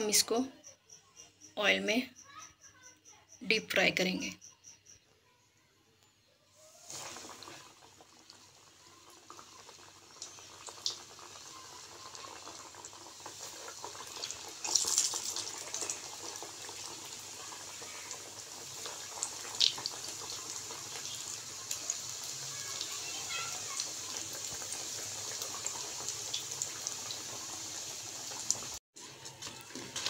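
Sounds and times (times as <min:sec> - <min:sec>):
oil sizzling and bubbling: 0:06.2 - 0:30.0
sharp oil spatters: 0:14.1 - 0:16.1.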